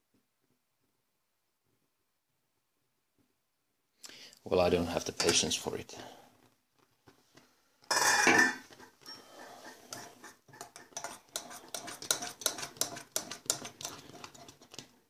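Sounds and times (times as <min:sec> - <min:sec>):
spoon scraping a saucepan: 0:07.9 - 0:14.8.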